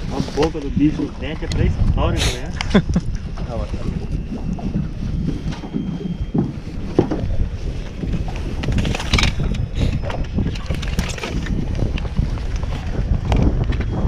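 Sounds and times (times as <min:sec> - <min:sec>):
wind buffeting microphone: 0:00.0 - 0:14.0
handling knocks and clatter: 0:08.1 - 0:12.1.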